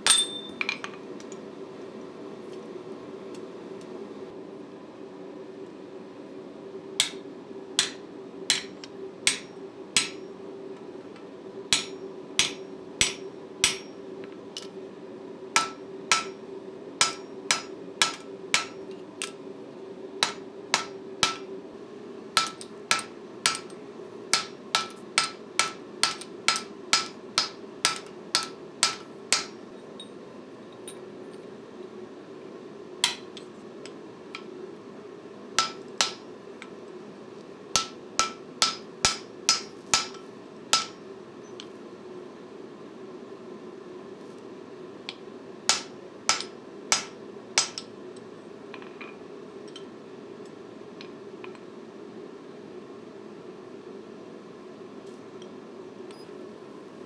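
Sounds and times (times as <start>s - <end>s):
hammer striking steel punch: 0.0s - 0.8s, 7.8s - 10.2s, 11.7s - 13.9s, 15.6s - 16.4s, 17.0s - 18.8s, 20.2s - 21.5s, 22.4s - 23.7s, 24.4s - 29.6s, 35.6s - 36.2s, 37.8s - 40.2s, 40.8s - 41.0s, 45.7s - 47.8s.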